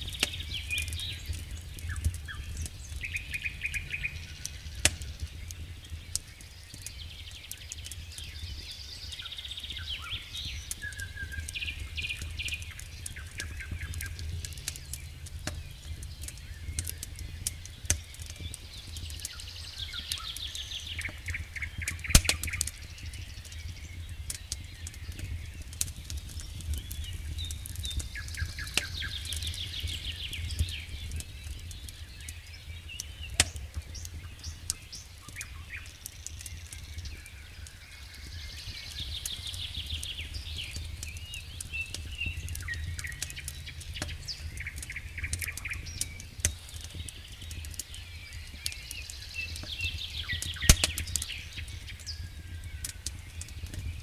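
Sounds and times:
steady low rumble: 0.0 - 7.2, 9.6 - 19.8, 36.5 - 48.1
campfire crackling and popping: 0.0 - 54.0
songbirds chirping: 0.0 - 54.0.

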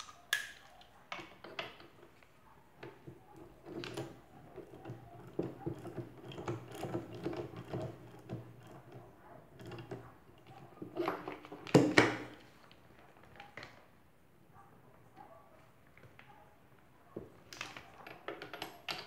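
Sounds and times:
metal clicks and clunks: 2.8 - 12.4.

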